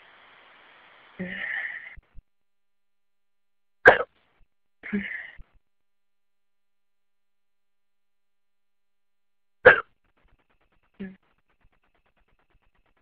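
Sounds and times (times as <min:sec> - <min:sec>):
person hiccuping: 0:03.9 - 0:04.1
person moaning: 0:04.8 - 0:05.4.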